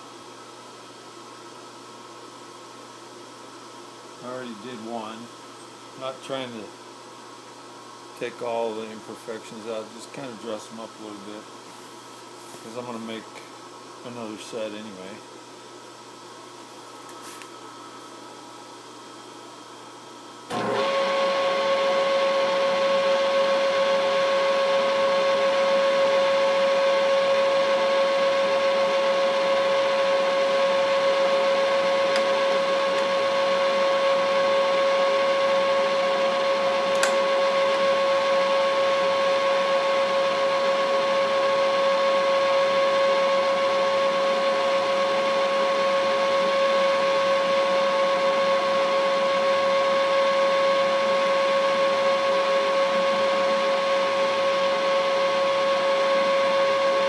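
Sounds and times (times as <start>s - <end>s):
milling machine whining: 20.5s - 57.0s.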